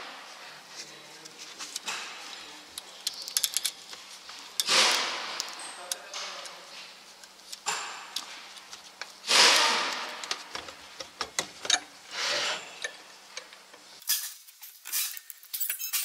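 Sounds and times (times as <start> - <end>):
metal clicks and knocks: 9.0 - 11.9.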